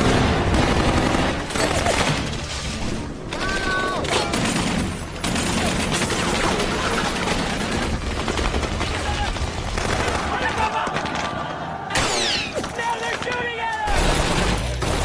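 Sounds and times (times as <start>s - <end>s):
heavy automatic gunfire: 0.0s - 2.3s, 3.4s - 11.4s, 13.9s - 15.0s.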